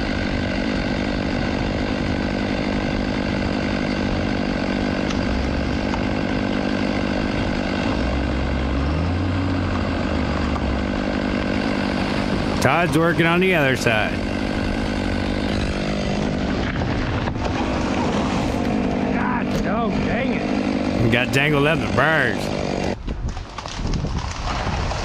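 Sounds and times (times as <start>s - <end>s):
diesel engine running: 0.0s - 25.0s.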